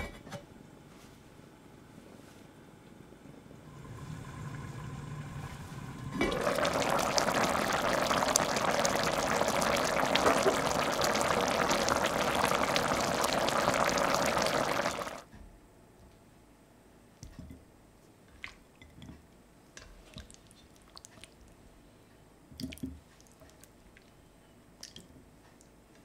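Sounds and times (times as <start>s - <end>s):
stew bubbling in a pot: 3.6s - 15.3s, 20.1s - 21.5s.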